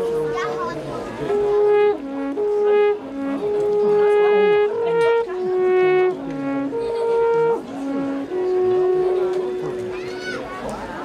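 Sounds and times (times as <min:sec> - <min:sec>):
alphorn playing slow melody: 0:00.0 - 0:10.8.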